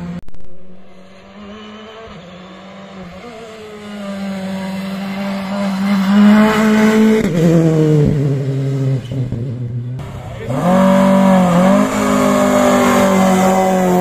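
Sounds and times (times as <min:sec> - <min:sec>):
rally car engine at high revs: 0:00.0 - 0:14.0.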